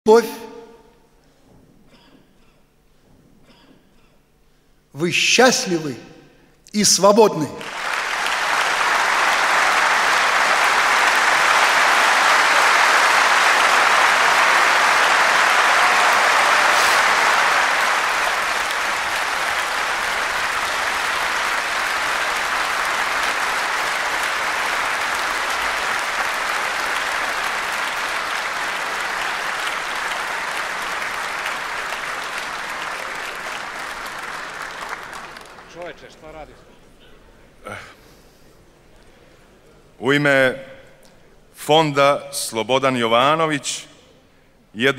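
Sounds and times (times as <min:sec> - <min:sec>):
audience applauding: 0:07.4 - 0:36.5.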